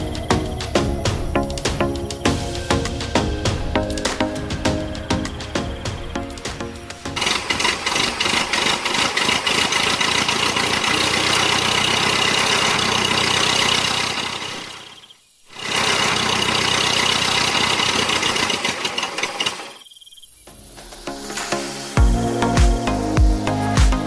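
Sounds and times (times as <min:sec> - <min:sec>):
tractor engine running: 0:04.6 - 0:19.7.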